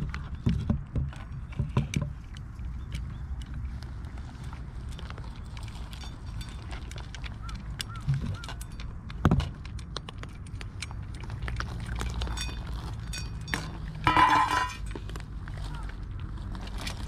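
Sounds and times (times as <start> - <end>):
cats chewing and lapping food: 0.0 - 17.0
teeth clicking on metal dish: 4.9 - 15.0.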